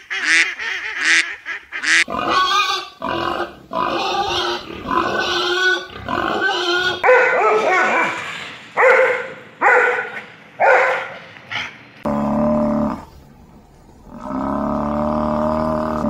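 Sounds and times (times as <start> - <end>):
dog barking in short yelps: 7.0 - 8.2.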